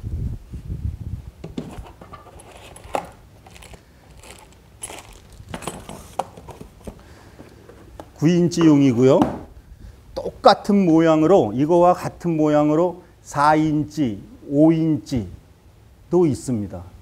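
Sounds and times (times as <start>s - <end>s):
plastic and cardboard handling noise: 1.4s - 9.5s.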